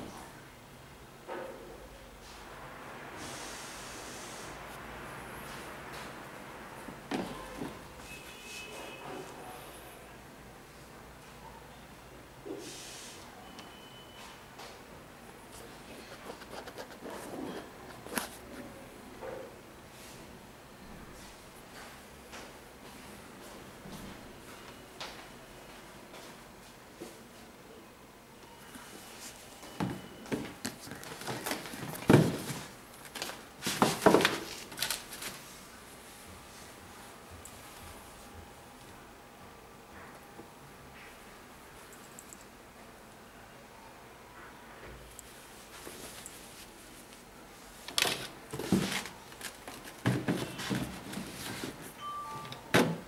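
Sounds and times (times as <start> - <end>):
shoebox handling knocks and rustles: 29.7 - 35.2, 48.0 - 51.9.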